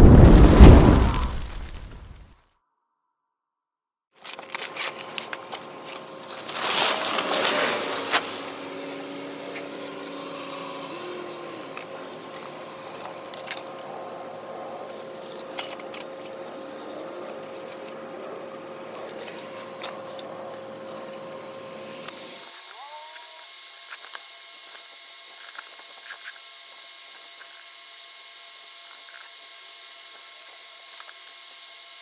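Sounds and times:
plastic tarp rustling: 4.2s - 8.8s
faint steady drone: 5.2s - 24.2s
tarp snap: 6.3s - 8.6s.

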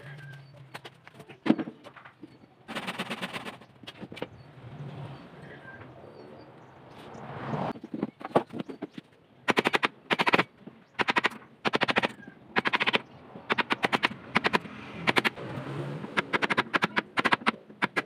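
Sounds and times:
hand tool clicking on plywood: 11.0s - 15.4s, 16.1s - 18.0s.

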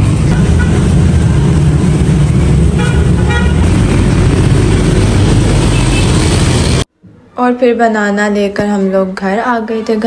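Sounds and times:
traffic engine rumble: 0.0s - 6.9s
vehicle horn toots: 2.8s - 3.7s, 5.7s - 6.3s.

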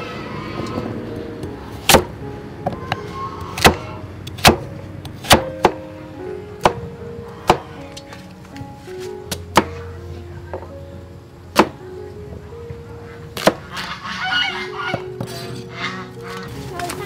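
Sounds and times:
background music: 0.0s - 17.0s.

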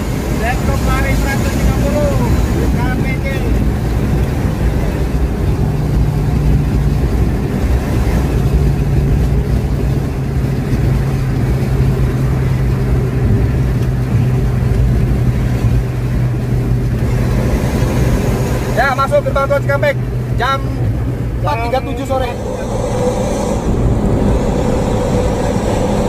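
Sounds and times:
car engine drone: 0.0s - 26.0s
road noise rumble: 0.0s - 26.0s.

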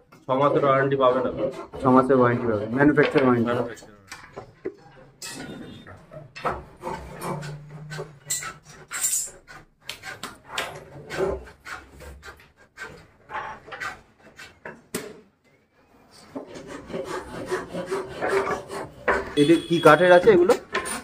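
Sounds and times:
wood being scraped: 0.3s - 4.4s, 6.4s - 14.8s, 16.0s - 21.0s.

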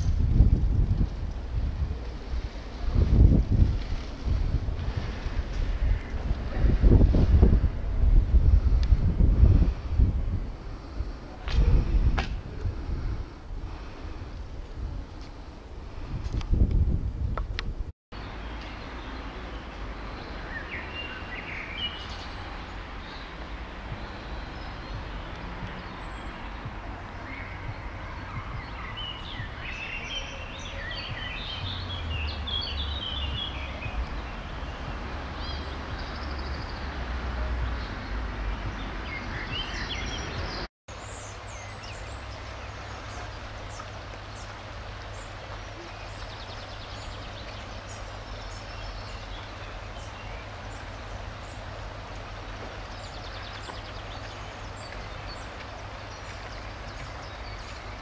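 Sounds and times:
road traffic rumble: 0.0s - 58.0s
steady outdoor hiss: 0.0s - 58.0s
small birds chirping: 18.2s - 58.0s.

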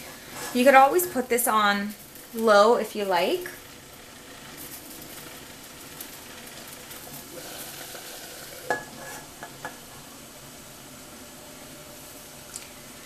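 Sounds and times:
water boiling hard: 0.0s - 13.0s
metal pan clanking on pot: 8.6s - 9.9s.

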